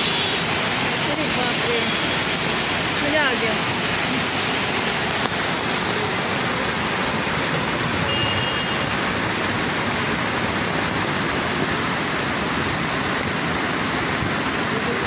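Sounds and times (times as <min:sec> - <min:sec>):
waterfall rushing over rocks: 0:00.0 - 0:15.0.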